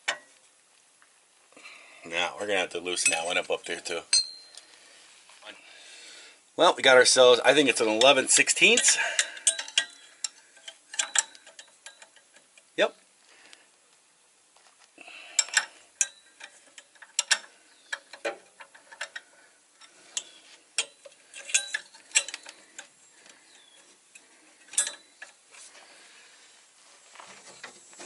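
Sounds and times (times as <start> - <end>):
wrench clicking metallically: 8.0 - 12.7, 15.3 - 22.9.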